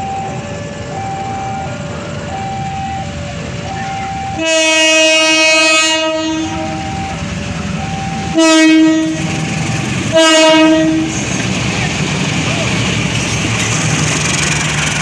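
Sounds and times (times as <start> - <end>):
two-note warning signal: 0.0 - 11.2
low engine rumble: 0.0 - 15.0
locomotive air horn blasts: 4.0 - 7.2, 7.8 - 11.4.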